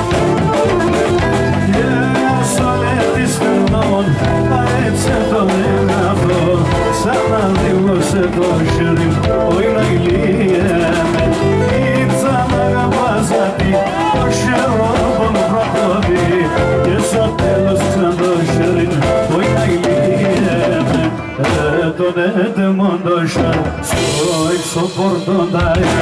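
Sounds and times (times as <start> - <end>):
steady drum beat: 0.0 - 22.1, 23.2 - 26.0
keyboard melody: 0.0 - 26.0
live band playing folk music: 0.0 - 26.0.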